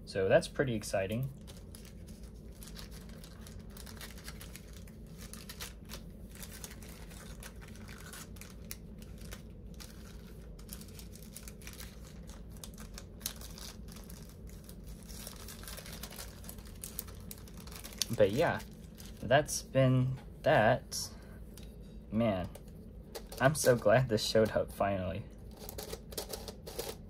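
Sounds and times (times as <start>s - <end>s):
plastic sleeve crinkling: 1.0s - 19.6s, 22.4s - 24.1s, 25.4s - 27.0s.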